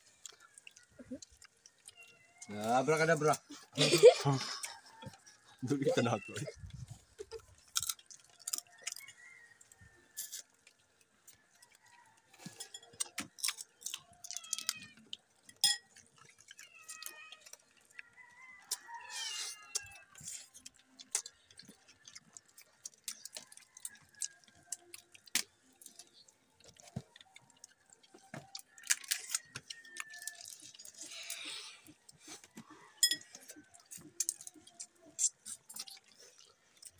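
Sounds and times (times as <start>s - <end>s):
crab shells cracking: 7.2s - 12.1s, 12.7s - 19.0s, 19.6s - 32.2s, 33.5s - 36.9s.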